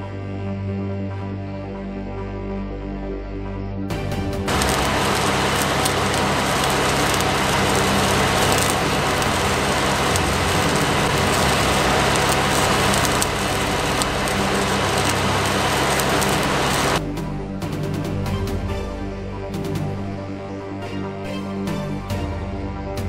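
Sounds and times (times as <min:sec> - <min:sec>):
welding arc crackling: 0:04.4 - 0:17.0
sharp welding pops: 0:04.5 - 0:17.0.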